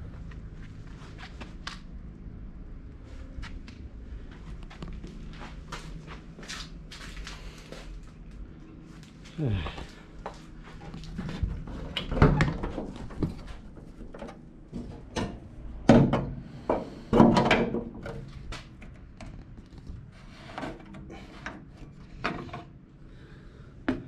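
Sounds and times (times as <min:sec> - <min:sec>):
tools clunking and clattering: 0:11.1 - 0:18.4.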